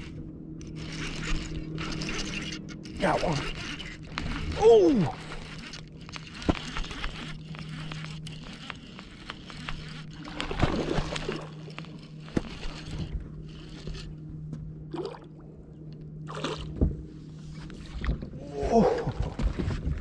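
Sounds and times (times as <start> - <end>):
fishing reel clicking: 0.0 - 14.1.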